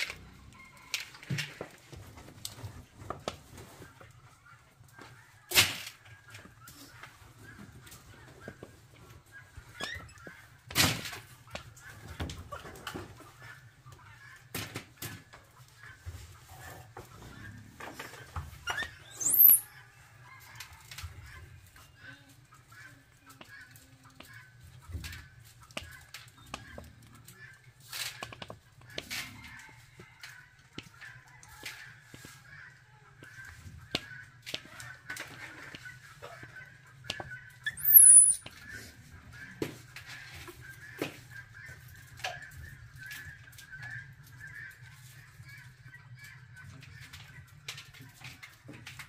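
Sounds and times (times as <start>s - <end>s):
chickens clucking: 0.0s - 49.0s
faint high chirping calls: 18.7s - 19.7s, 37.6s - 38.4s.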